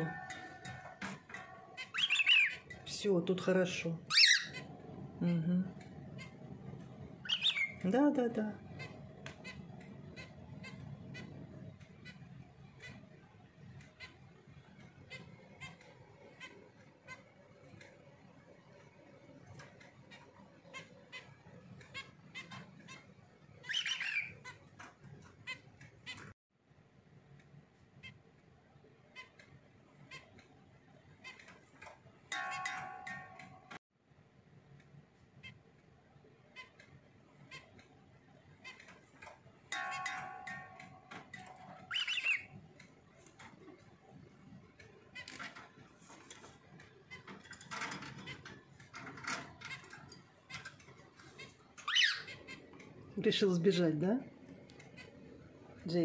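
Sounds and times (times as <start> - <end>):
finch chattering call: 0.0 - 3.0, 7.2 - 11.3, 23.6 - 24.6, 39.7 - 42.6, 51.8 - 52.6
finches beeping calls: 0.0 - 13.1, 19.6 - 24.8, 39.7 - 42.8, 47.1 - 53.4
bird rattling wire cage: 45.1 - 52.0.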